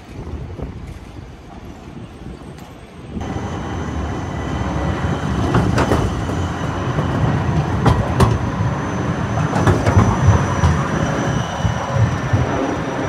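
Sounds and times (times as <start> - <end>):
tram wheels rumbling on rails: 0.0 - 13.0
wheels clicking on track: 0.0 - 13.0
faint high whine: 3.2 - 13.0.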